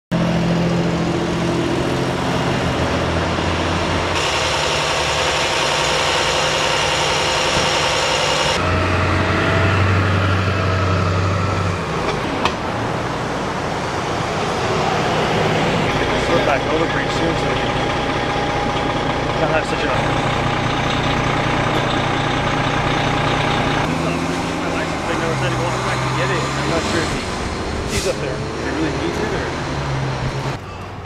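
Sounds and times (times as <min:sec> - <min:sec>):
diesel engines idling: 0:00.1 - 0:31.0.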